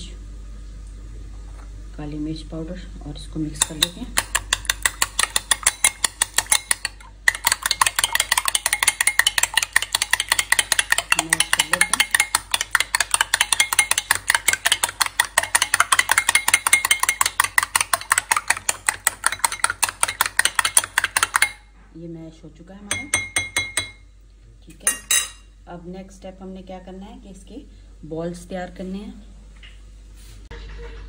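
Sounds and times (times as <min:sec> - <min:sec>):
spoon clinking against glass bowl: 0:03.6 - 0:21.6, 0:22.9 - 0:24.0, 0:24.8 - 0:25.5.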